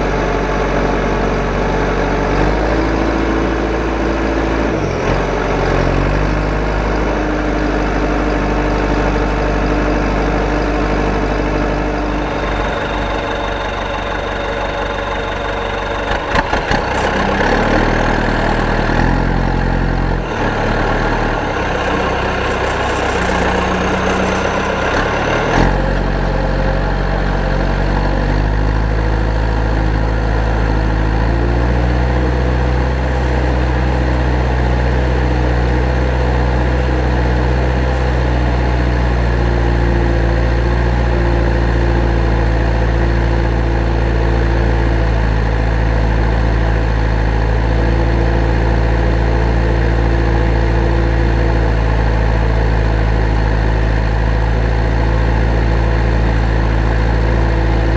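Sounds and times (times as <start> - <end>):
vehicle engine idling: 0.0 - 57.9
faint higher hum: 10.6 - 18.7.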